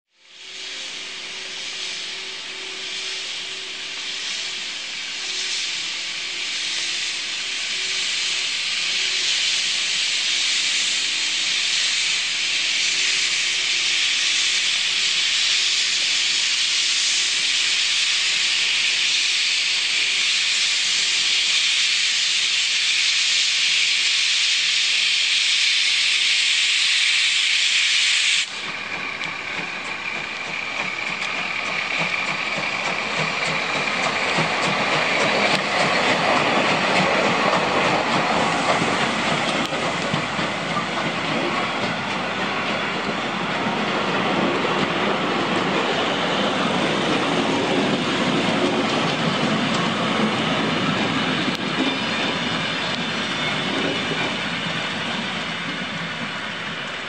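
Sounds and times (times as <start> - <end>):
steam hissing from locomotive: 0.1 - 57.0
thin steady squeal: 25.8 - 57.0
train coaches rolling: 28.2 - 57.0.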